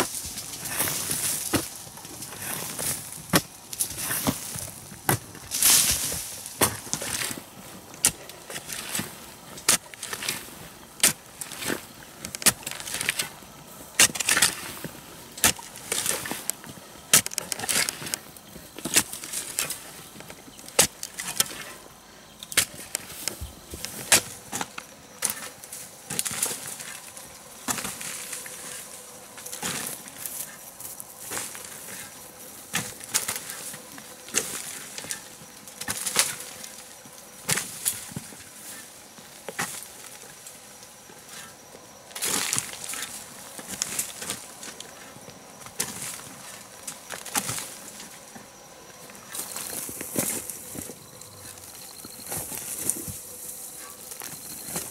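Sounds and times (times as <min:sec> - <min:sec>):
hand tool digging into soil: 0:00.0 - 0:13.4, 0:14.0 - 0:18.2, 0:18.8 - 0:21.8, 0:22.4 - 0:30.6, 0:31.2 - 0:36.8.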